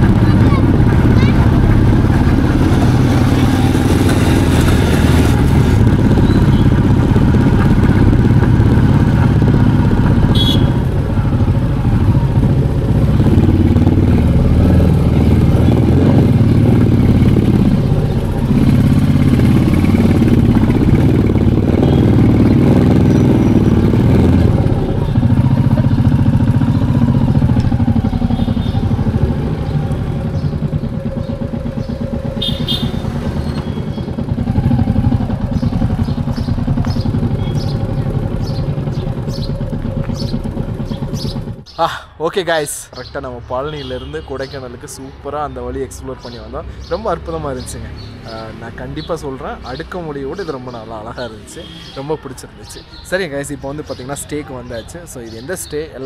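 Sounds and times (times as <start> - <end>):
motorcycle engine running: 0.0 - 41.7.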